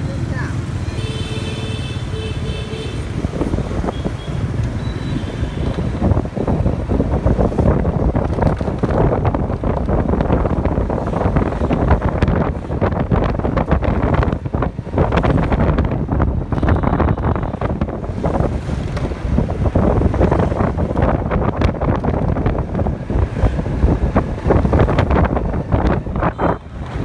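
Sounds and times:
motorbike traffic: 0:00.0 - 0:27.0
gusty wind buffeting microphone: 0:03.0 - 0:27.0.

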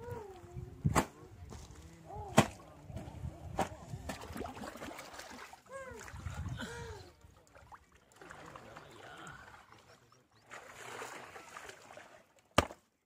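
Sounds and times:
river water sloshing and splashing: 0:03.6 - 0:12.8.

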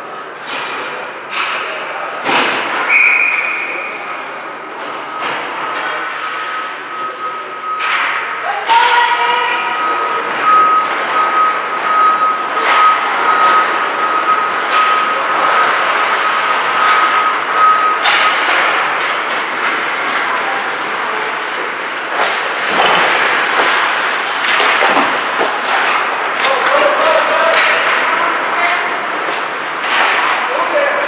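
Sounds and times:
rink noise: 0:19.6 - 0:31.0
hockey sticks and puck knocking: 0:22.1 - 0:30.6.

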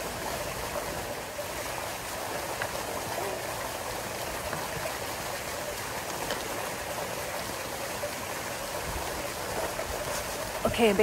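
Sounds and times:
fountain water splashing: 0:00.0 - 0:11.0.

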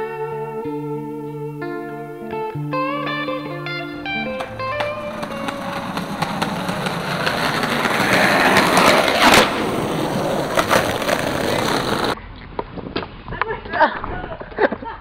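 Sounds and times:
skateboard wheels rolling: 0:04.0 - 0:12.2
skateboard clacks: 0:04.2 - 0:12.2.

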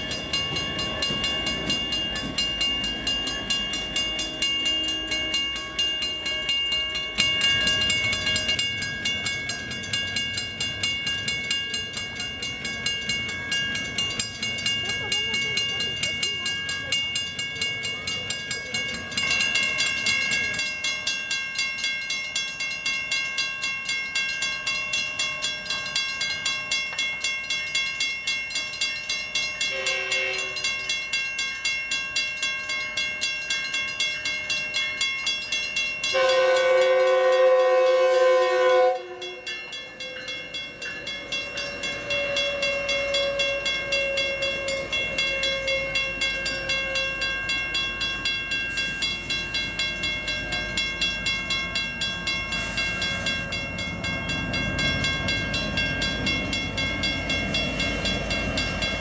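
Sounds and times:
crossing warning bells ringing: 0:00.0 - 0:59.0
train rumbling: 0:00.0 - 0:59.0
train horn blasts: 0:29.7 - 0:30.6, 0:36.1 - 0:39.5, 0:41.8 - 0:47.4.

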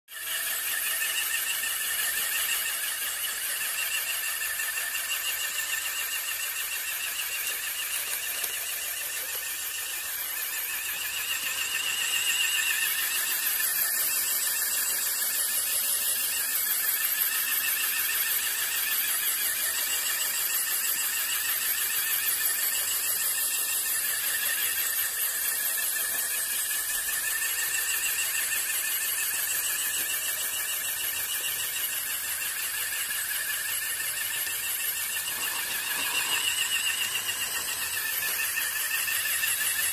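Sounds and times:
electric motor whine: 0:00.1 - 0:39.9
broom brushing concrete: 0:34.8 - 0:39.9.

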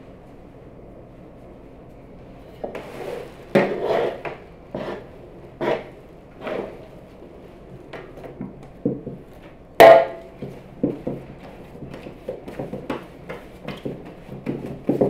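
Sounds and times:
dough thudding on wooden board: 0:09.8 - 0:15.0.

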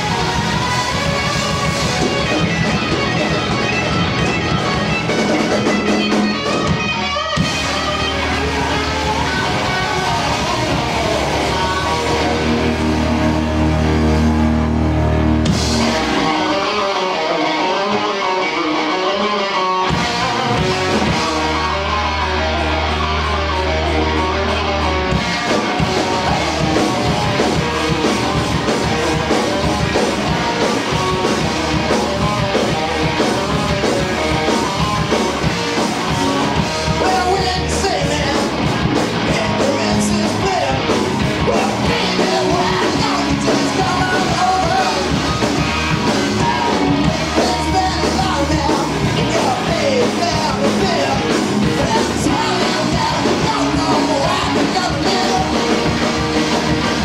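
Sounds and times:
drums: 0:00.0 - 0:57.0
live rock band playing: 0:00.0 - 0:57.0
man singing: 0:07.7 - 0:13.5, 0:15.7 - 0:24.6, 0:36.8 - 0:38.6, 0:39.2 - 0:56.2.

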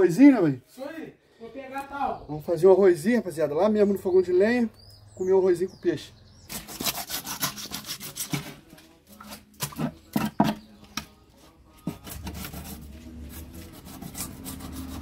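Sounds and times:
knife scraping fish: 0:06.5 - 0:10.0, 0:11.9 - 0:15.0.

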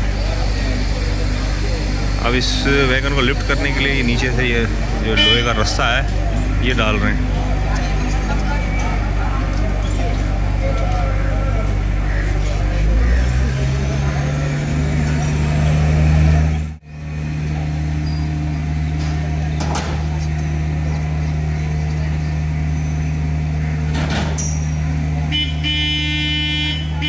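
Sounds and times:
heavy engine humming: 0:00.0 - 0:27.0
high horn: 0:05.1 - 0:05.7, 0:25.3 - 0:27.0.

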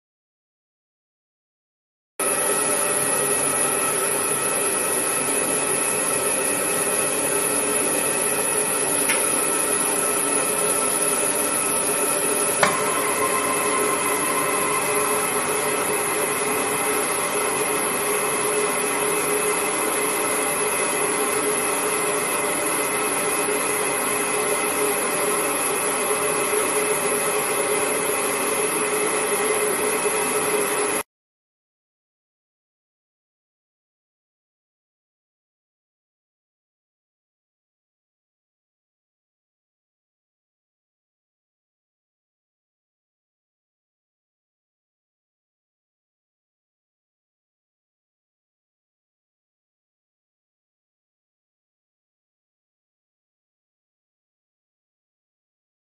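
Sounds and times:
gas burner hissing: 0:02.2 - 0:28.0.

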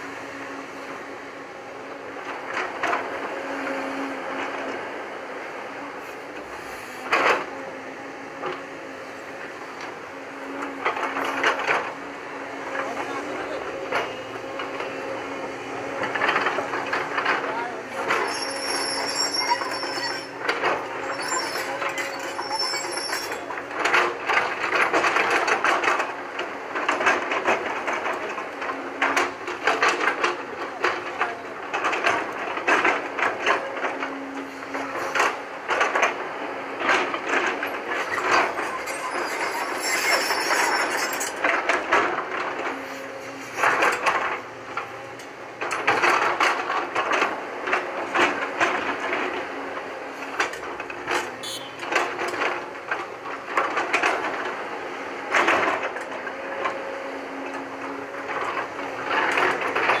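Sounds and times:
excavator engine under load: 0:00.0 - 1:00.0.

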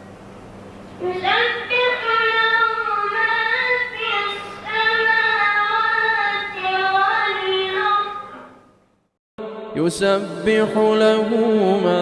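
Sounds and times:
boy chanting melodically: 0:01.0 - 0:08.4.

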